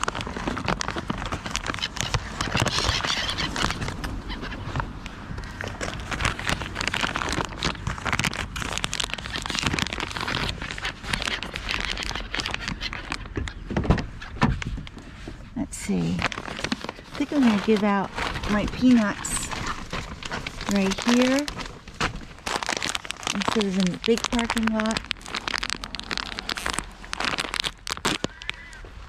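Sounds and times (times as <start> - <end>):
crows calling: 1.7 - 5.6, 28.1 - 29.0.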